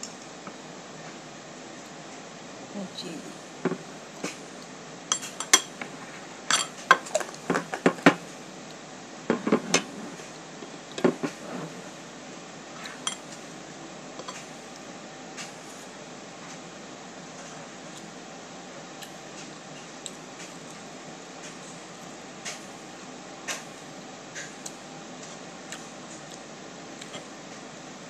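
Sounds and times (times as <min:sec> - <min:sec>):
cutlery clinking on a plate: 0:06.5 - 0:07.1.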